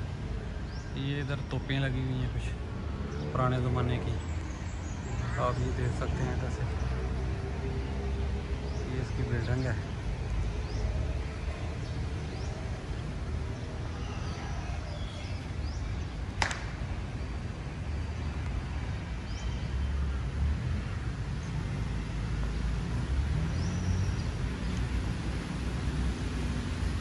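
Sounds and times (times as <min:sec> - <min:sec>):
distant road traffic rumble: 0:00.0 - 0:27.0.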